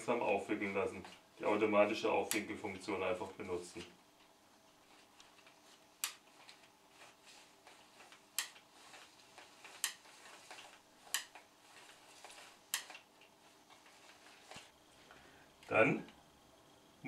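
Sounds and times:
cable rewind reel clicking: 0:05.4 - 0:14.7.

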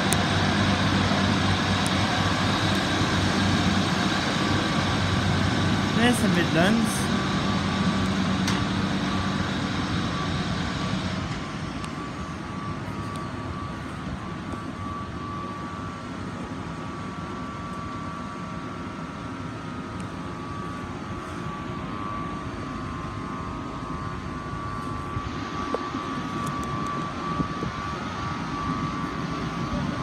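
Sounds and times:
diesel train engine idling: 0:00.0 - 0:16.3
thin steady whine: 0:00.0 - 0:30.0.

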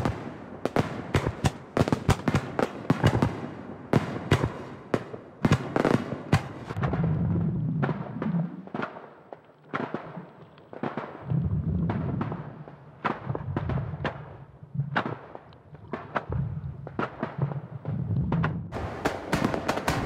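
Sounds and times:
fireworks bangs and crackles: 0:00.0 - 0:20.0
low rumble of booms: 0:06.7 - 0:08.8, 0:11.2 - 0:15.1, 0:15.9 - 0:18.8.

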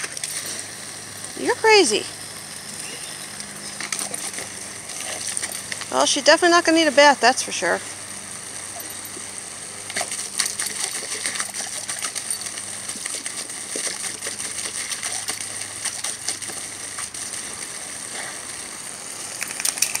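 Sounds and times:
puppy snapping and lapping water: 0:00.0 - 0:00.8, 0:02.8 - 0:06.2, 0:08.7 - 0:18.6, 0:19.2 - 0:20.0
garden hose spraying water: 0:00.0 - 0:20.0.

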